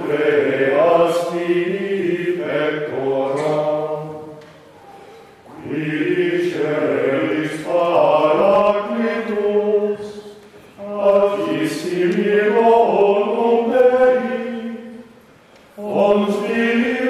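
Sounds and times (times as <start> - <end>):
choir singing a slow chant: 0.0 - 4.7, 5.4 - 17.0.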